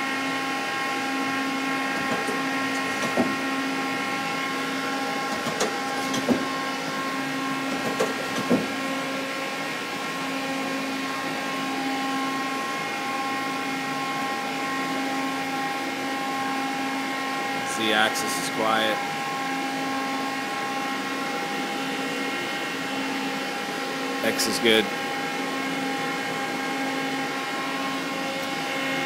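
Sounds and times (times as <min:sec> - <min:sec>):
lathe whining hum: 0:00.0 - 0:29.0.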